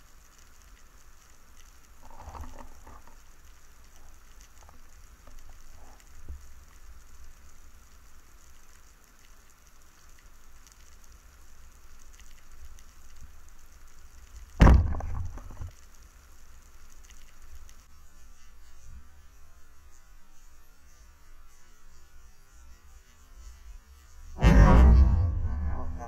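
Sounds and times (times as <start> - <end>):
faint crackling: 0.0 - 17.9, 24.4 - 26.0
loud sudden knock: 14.6 - 15.6, 24.4 - 26.0
low underwater rumble: 14.6 - 15.7, 24.4 - 26.0.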